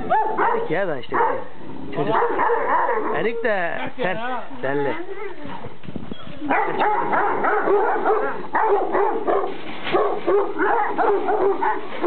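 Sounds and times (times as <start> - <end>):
dogs barking: 0.0 - 3.4, 6.5 - 12.0.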